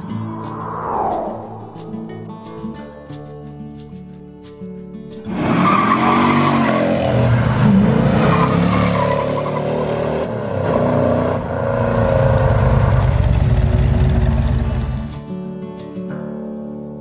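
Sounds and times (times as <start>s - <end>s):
car engine revving: 5.3s - 15.1s.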